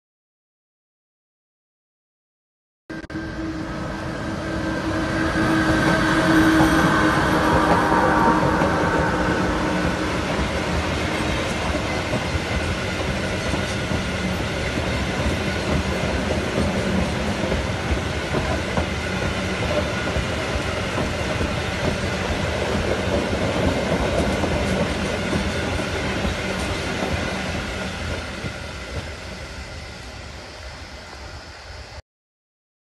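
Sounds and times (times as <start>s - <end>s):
freight train wheels rumbling on rail: 3.0s - 32.0s.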